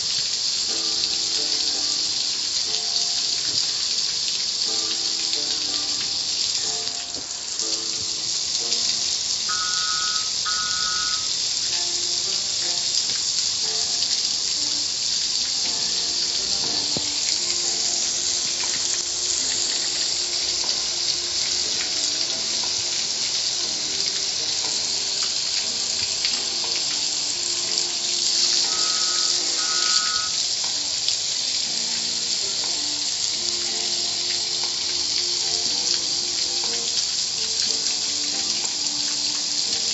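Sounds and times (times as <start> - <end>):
faint music: 0.0 - 39.9
water jets spraying onto a car: 0.0 - 39.9
short paired tones: 9.5 - 11.4, 28.6 - 30.4.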